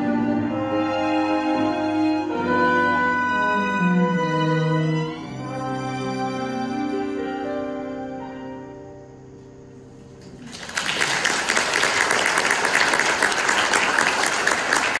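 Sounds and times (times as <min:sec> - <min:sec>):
piano strings and trumpet chord: 0:00.0 - 0:10.5
audience applause: 0:10.3 - 0:15.0.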